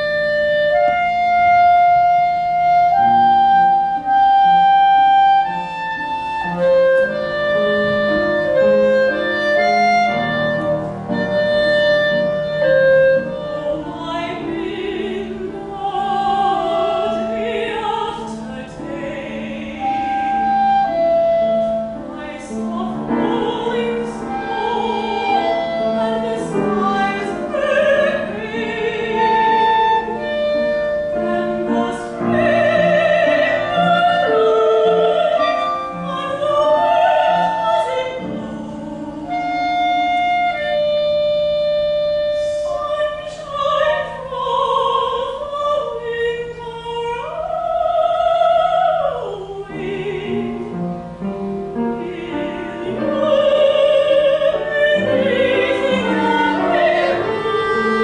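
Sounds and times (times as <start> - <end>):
soprano singing with vibrato: 0.0 - 50.9, 51.7 - 58.0
clarinet melody: 0.0 - 58.0
piano: 0.0 - 58.0.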